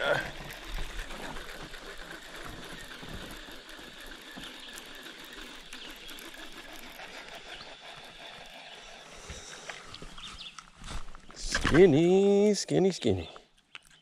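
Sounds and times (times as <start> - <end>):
electric motor whining: 0.0 - 10.3.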